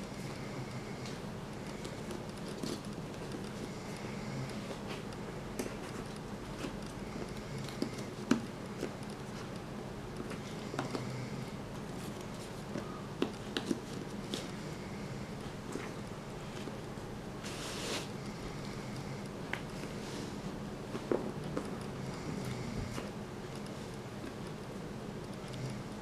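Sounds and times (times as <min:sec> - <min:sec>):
low room noise: 0:00.0 - 0:26.0.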